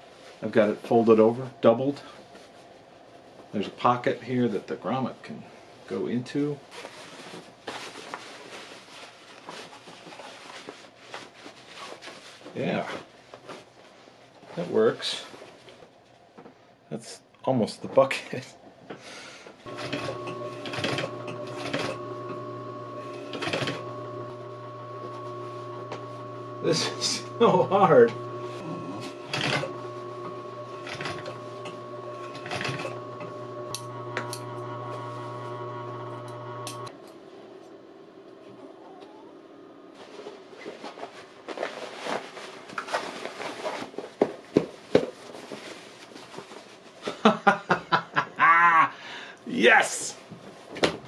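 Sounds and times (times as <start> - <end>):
canvas rustling and crumpling: 6.7 - 14.3, 39.9 - 47.0
sewing machine motor running: 19.7 - 37.0
sewing machine stitching canvas: 19.7 - 37.0.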